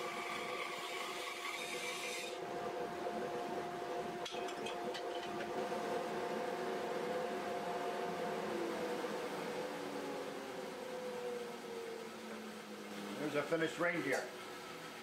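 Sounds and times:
bandsaw motor humming: 0.0 - 14.9.

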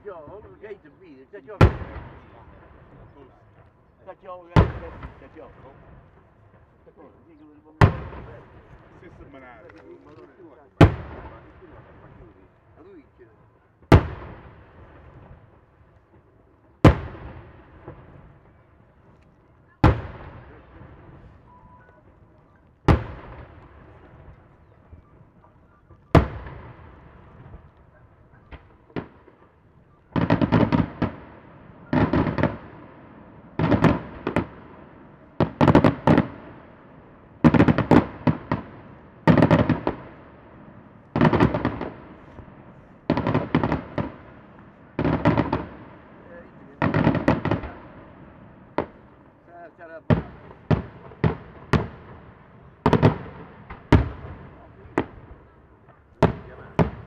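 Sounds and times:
rapid firework crackling: 26.2 - 32.8, 41.1 - 49.2.

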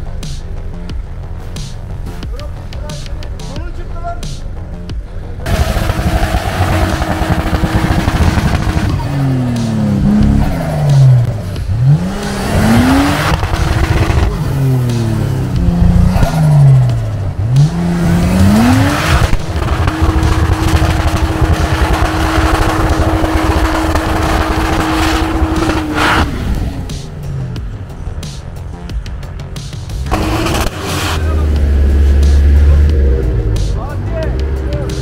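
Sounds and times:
car engine revving: 0.0 - 35.0
tyres churning through snow: 5.4 - 27.5, 30.0 - 35.0.

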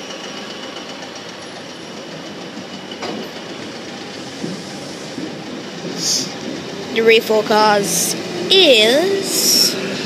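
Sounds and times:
train wheels rolling: 0.0 - 10.0.

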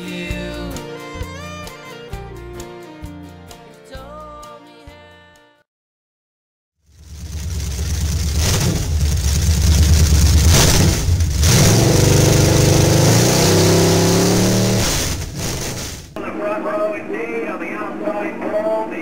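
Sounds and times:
race car engine revving: 6.9 - 16.2.

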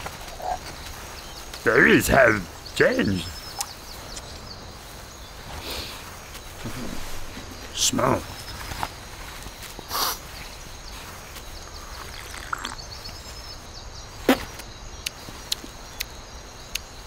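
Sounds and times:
faint bird chirps: 0.0 - 17.0
faint ticks: 14.6 - 17.0.

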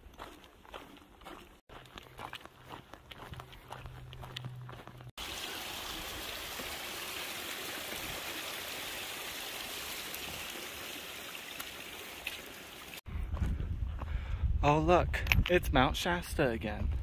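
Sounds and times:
footsteps: 0.0 - 5.2, 13.1 - 14.2
water running steadily: 5.2 - 13.1.

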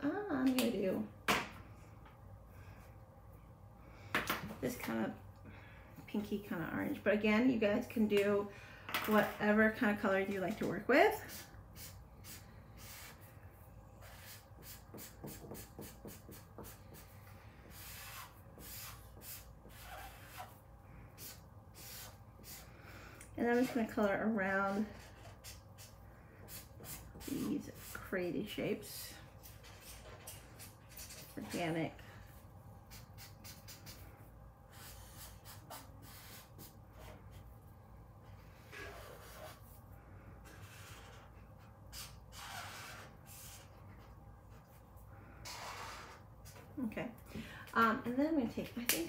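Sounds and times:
marker scratching on paper: 14.0 - 20.6, 21.2 - 22.6, 23.5 - 24.0, 24.6 - 28.0, 29.4 - 31.7, 32.9 - 34.0, 34.7 - 37.4, 38.6 - 39.7, 40.4 - 44.0, 45.4 - 46.6.

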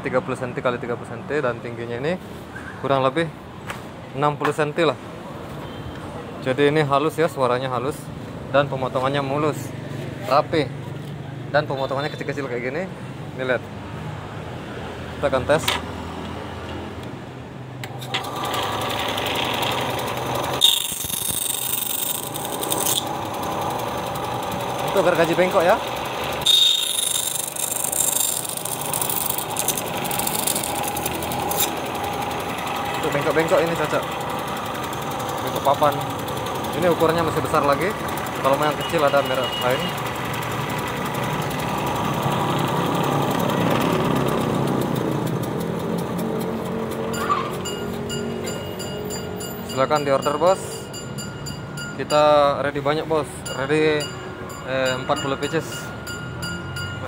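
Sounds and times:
bandsaw running: 18.0 - 48.2
blade cutting cardboard: 18.2 - 23.8, 24.9 - 31.9.

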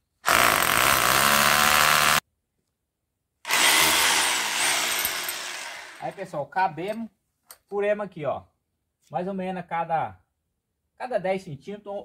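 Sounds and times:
cordless drill boring into brick: 0.2 - 2.2, 3.5 - 6.1.

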